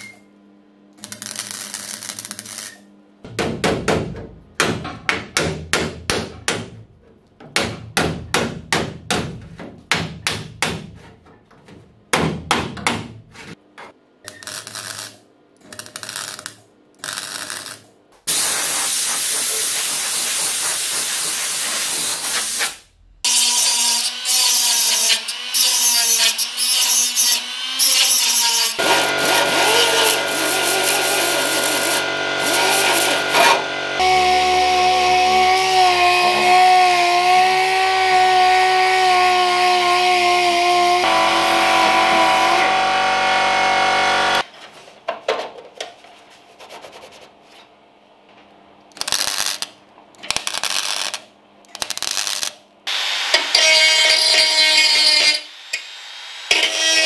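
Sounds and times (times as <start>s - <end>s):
rotary grinder on metal: 23.3s - 38.6s, 41.0s - 44.4s, 53.3s - 55.5s, 56.5s - 57.0s.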